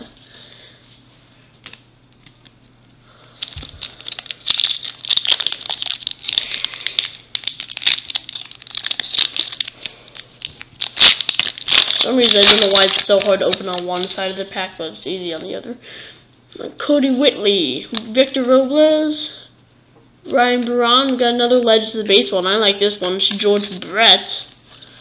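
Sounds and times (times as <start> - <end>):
wrapper ripping: 3.4 - 14.3
foil wrapper crinkling: 3.4 - 14.4.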